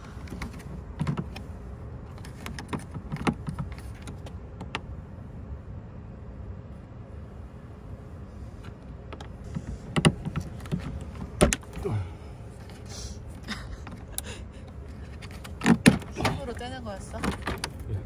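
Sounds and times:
low steady rumble: 0.0 - 18.0
latch clicks and knocks: 9.1 - 11.7.

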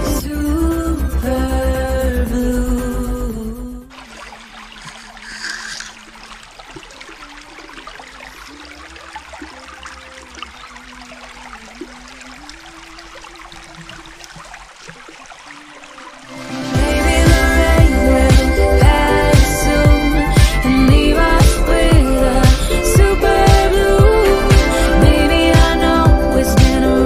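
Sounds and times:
background music: 0.0 - 3.9, 16.3 - 27.0
creek water trickling over rocks: 3.8 - 25.8.

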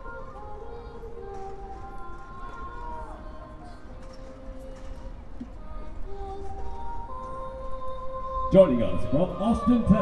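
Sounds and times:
music of long held notes: 0.0 - 10.0.

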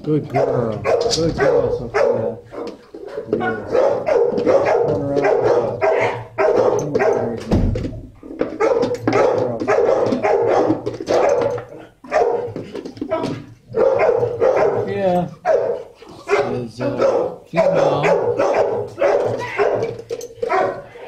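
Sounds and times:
dogs barking: 0.2 - 7.6, 8.4 - 21.0.

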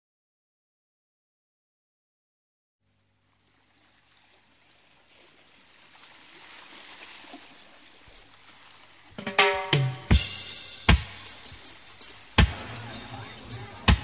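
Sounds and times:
drumbeat: 9.2 - 14.0.

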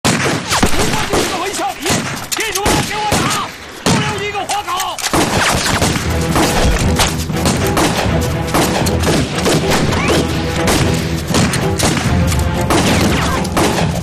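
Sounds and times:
gunshots and blasts: 0.0 - 14.0
dramatic background music: 5.1 - 14.0.

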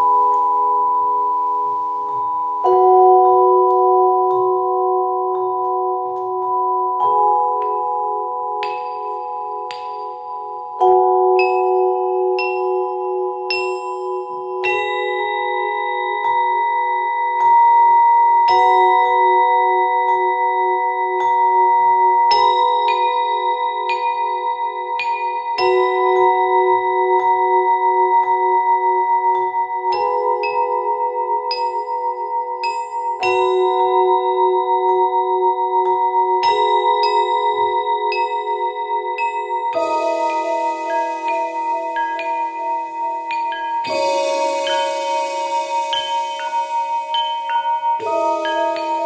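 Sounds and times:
marimba mallet strikes: 39.2 - 49.0
sustained electronic chord: 39.8 - 49.0.

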